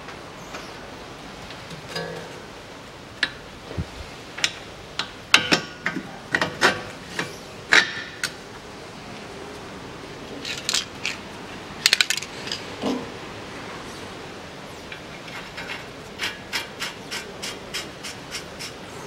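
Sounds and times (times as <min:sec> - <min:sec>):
metallic clicks of bolts and tools: 0:11.8 - 0:12.7.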